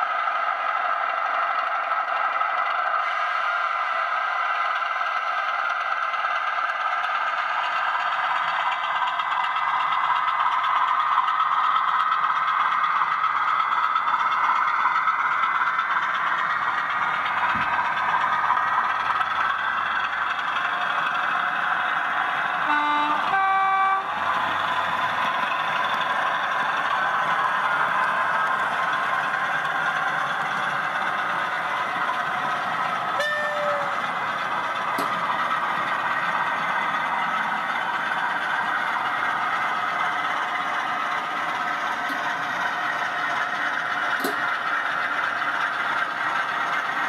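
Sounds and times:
model train whirring: 0.0s - 47.0s
two-note diesel horn: 22.6s - 24.2s, 33.2s - 34.1s.

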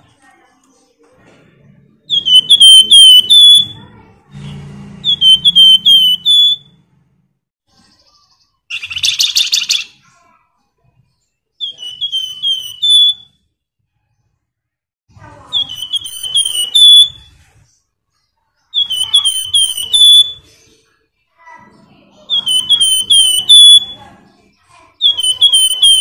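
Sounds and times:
songbird whistling: 2.1s - 3.9s, 5.0s - 6.8s, 8.7s - 10.0s, 11.6s - 13.5s, 15.5s - 17.4s, 18.7s - 20.6s, 22.3s - 24.0s, 25.0s - 26.0s.

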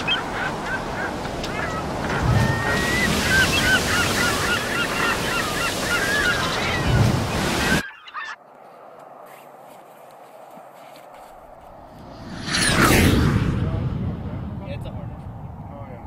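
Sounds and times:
geese honking: 0.0s - 8.4s
brief whoosh: 12.0s - 14.7s.

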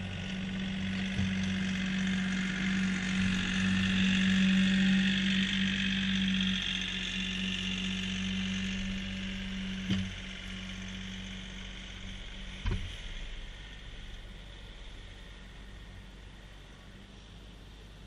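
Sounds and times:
tractor diesel engine running: 0.0s - 18.0s
short clunks: 12.6s - 13.1s.

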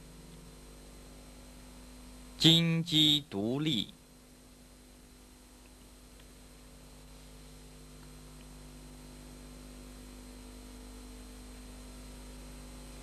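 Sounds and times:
faint hiss: 0.0s - 4.5s
steady electrical hum: 0.0s - 13.0s.

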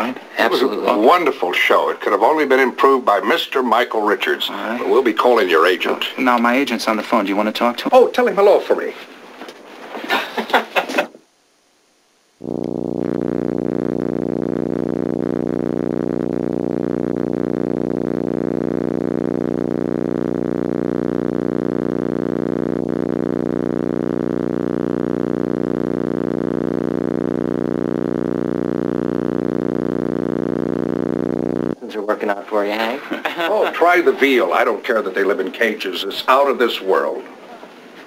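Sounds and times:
electrical buzz: 12.3s - 31.8s.

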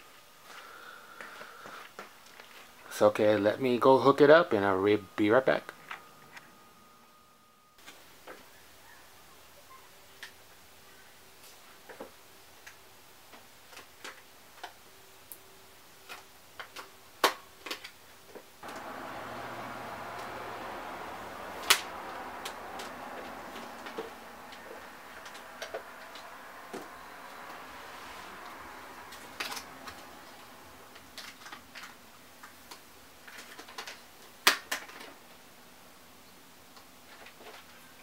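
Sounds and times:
steady hiss: 18.6s - 31.5s.

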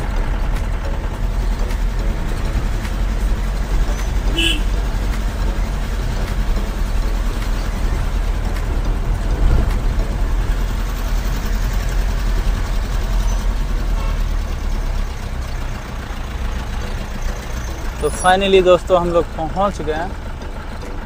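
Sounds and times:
car engine and tyre noise: 0.0s - 21.0s.

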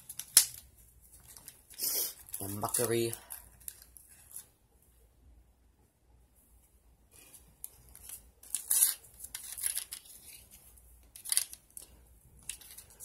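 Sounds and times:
scratchy plastic crackles: 0.0s - 4.6s, 7.2s - 13.0s.

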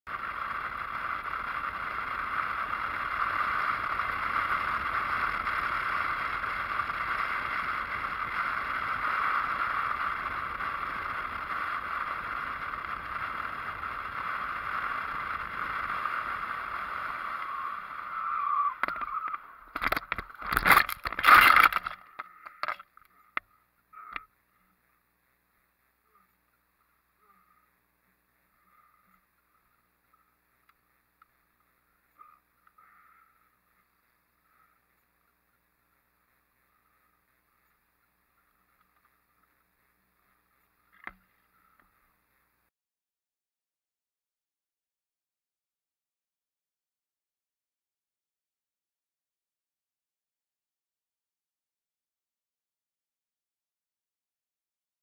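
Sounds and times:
wind and road noise: 0.1s - 42.7s.

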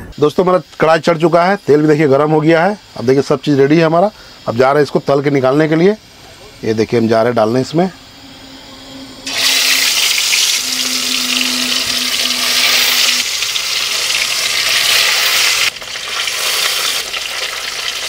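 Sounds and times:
fish sizzling in hot oil: 9.3s - 18.0s.

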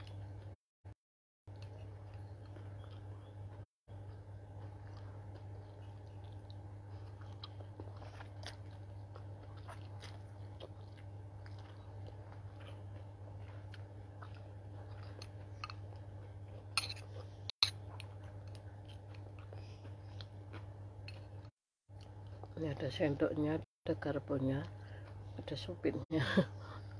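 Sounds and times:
person chewing noodles: 1.5s - 22.6s
steady low hum: 1.5s - 26.9s.

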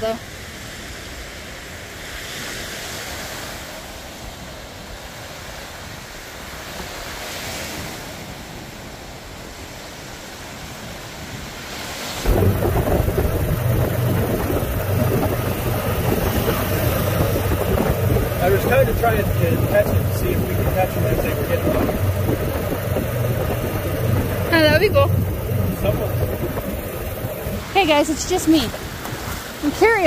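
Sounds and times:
waves washing on sandy shore: 0.2s - 30.0s
vehicle rumble in motion: 12.2s - 29.9s.

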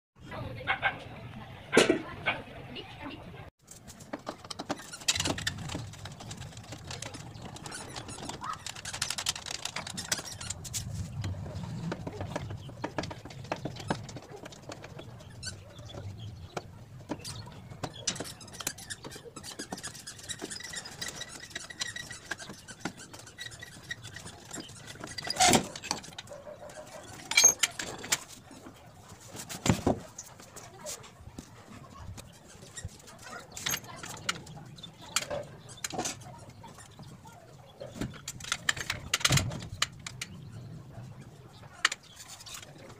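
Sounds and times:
metal parts rattling: 3.7s - 16.2s, 17.1s - 28.7s, 32.4s - 37.0s
screwdriver scraping on screws: 17.1s - 28.3s.

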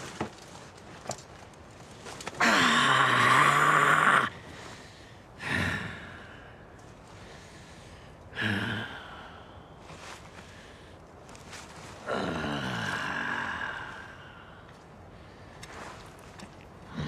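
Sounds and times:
man crying out in pain: 2.4s - 4.3s
man groaning: 2.4s - 4.3s.

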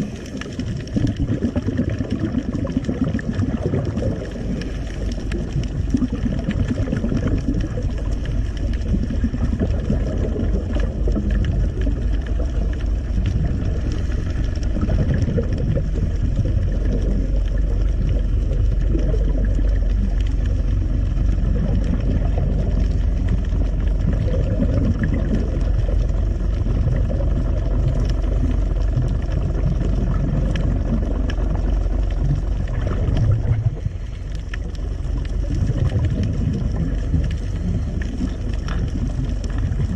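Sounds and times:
boat engine underwater rumble: 0.0s - 39.9s.

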